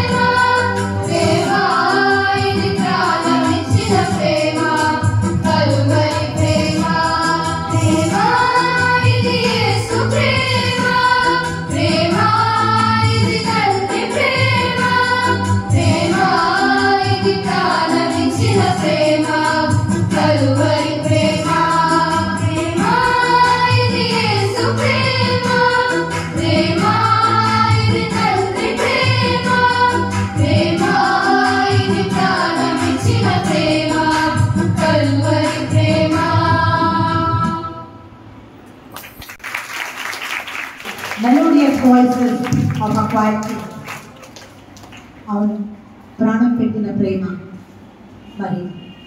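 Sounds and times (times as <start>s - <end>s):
low instrumental accompaniment: 0.0s - 37.7s
girls singing into microphones: 0.0s - 38.0s.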